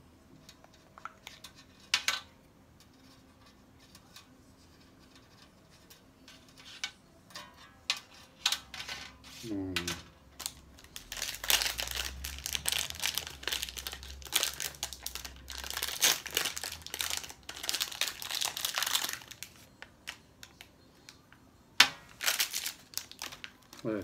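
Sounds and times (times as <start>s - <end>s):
foil wrapper crinkling: 9.8s - 21.2s, 22.1s - 24.0s.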